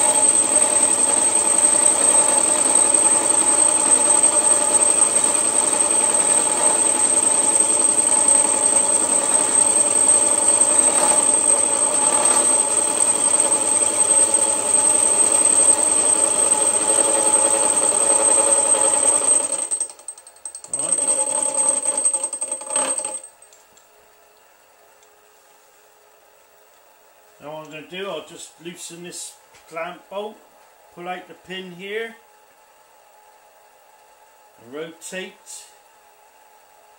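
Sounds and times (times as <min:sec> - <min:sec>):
milling machine cutting metal: 0:00.0 - 0:19.8, 0:20.7 - 0:23.1
motor whine: 0:00.0 - 0:19.8.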